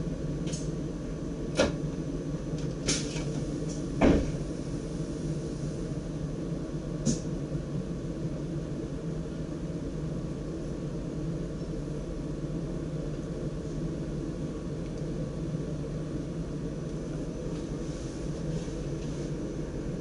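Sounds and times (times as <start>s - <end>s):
train cab hum and rumble: 0.0s - 20.0s.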